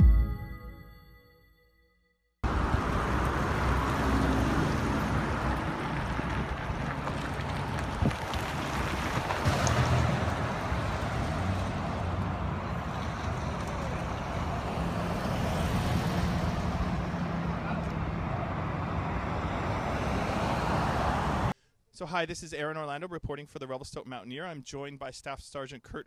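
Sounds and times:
road traffic passing: 2.4s - 21.6s
wind rumbling on microphone: 5.1s - 14.6s.

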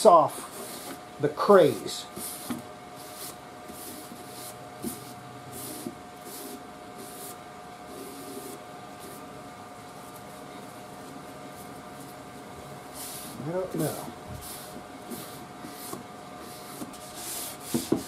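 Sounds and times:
faint steady hum: 0.0s - 18.0s
rag rubbing on wood: 0.4s - 1.0s, 1.6s - 9.2s, 12.9s - 18.0s.

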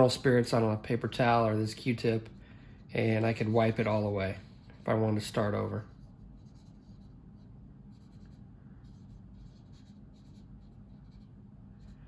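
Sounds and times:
cotton swab rubbing plastic: 3.4s - 12.0s.

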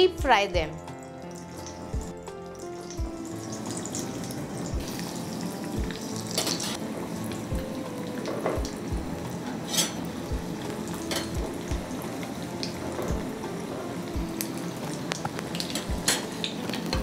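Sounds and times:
soft background music: 0.0s - 17.0s
hot oil sizzling: 0.2s - 17.0s.

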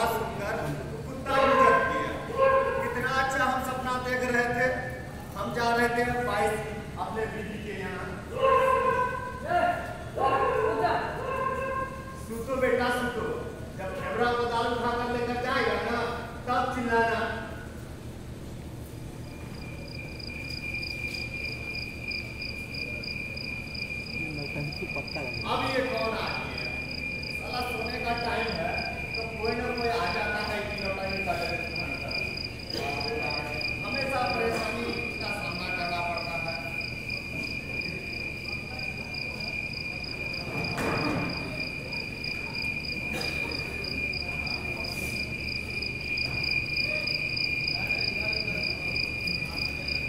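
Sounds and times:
pulsed cricket chirp: 0.0s - 0.7s, 18.9s - 50.0s
cricket trill: 0.0s - 13.3s, 18.9s - 50.0s
low background murmur: 0.0s - 50.0s.

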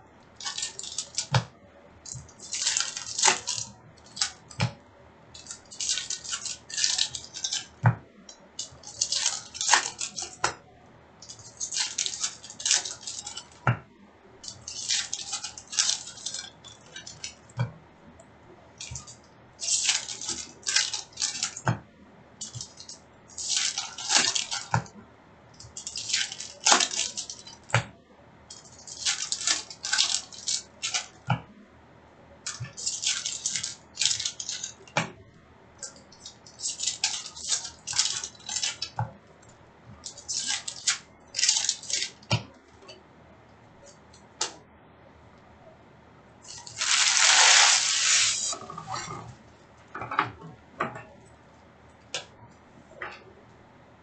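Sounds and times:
wrappers crinkling: 0.4s - 1.3s, 2.1s - 4.5s, 8.6s - 10.4s, 11.2s - 13.6s, 14.4s - 17.5s, 18.8s - 21.6s, 22.4s - 24.8s, 25.7s - 27.7s, 28.5s - 31.2s, 32.5s - 34.9s, 35.8s - 39.0s, 40.0s - 42.3s, 46.4s - 49.1s
cards rustling: 46.4s - 49.0s.

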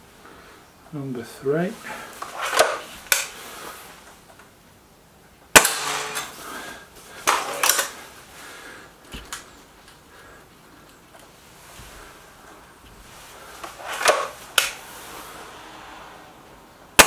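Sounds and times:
air rifle shot: 5.6s - 6.5s.

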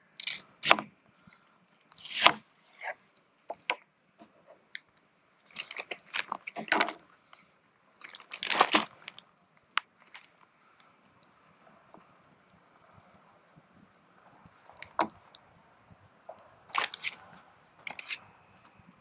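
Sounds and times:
high hum of insects: 0.0s - 19.0s
knife cutting on plastic board: 2.0s - 3.7s, 16.8s - 17.2s.

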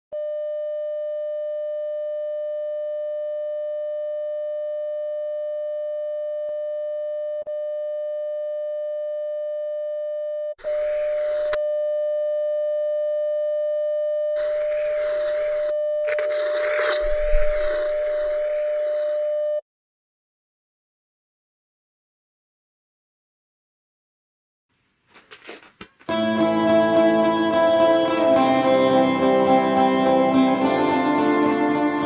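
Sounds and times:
electronic test tone: 10.6s - 11.6s, 14.4s - 19.6s
tv static hiss: 10.6s - 11.6s, 14.4s - 19.3s.

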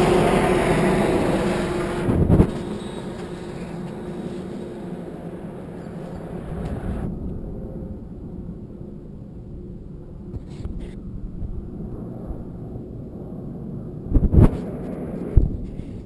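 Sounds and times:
distant helicopter rumble: 0.0s - 16.0s
loud rumbling thumps: 1.9s - 2.7s.

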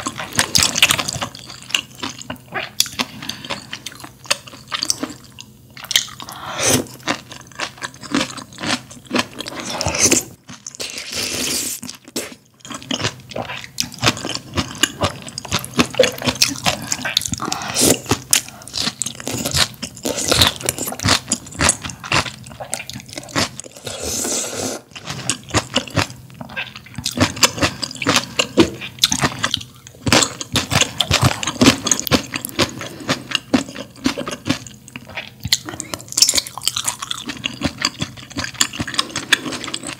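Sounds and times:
chewing with mouth clicks: 0.0s - 6.4s, 11.8s - 23.8s, 24.9s - 39.9s
person slurping noodles: 6.2s - 7.0s, 9.5s - 12.4s, 16.8s - 18.8s, 23.7s - 25.1s.

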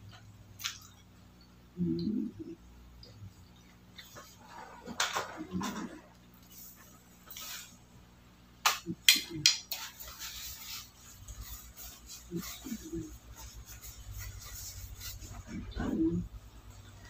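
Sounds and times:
paper tissue rustling: 6.4s - 7.8s, 9.7s - 16.0s
tissue rubbing against microphone: 6.4s - 7.8s, 9.7s - 17.0s.

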